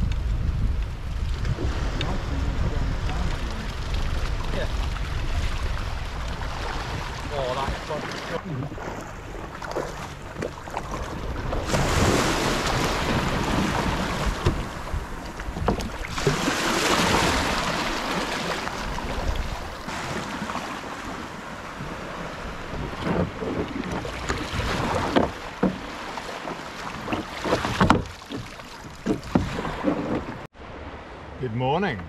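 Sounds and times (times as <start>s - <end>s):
wind buffeting microphone: 0.0s - 25.7s
water sloshing around kayak: 1.1s - 31.4s.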